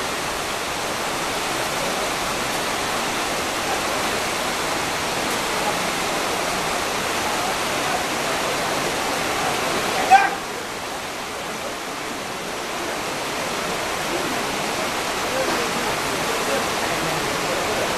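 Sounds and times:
river rushing over rocks: 0.0 - 17.9.

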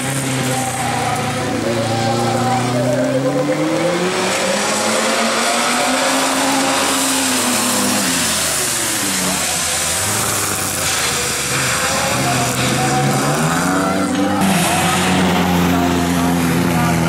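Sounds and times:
race car engines revving: 0.0 - 17.0.

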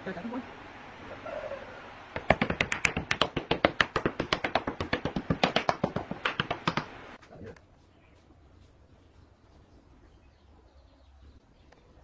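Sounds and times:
rapid sharp taps: 2.2 - 7.0.

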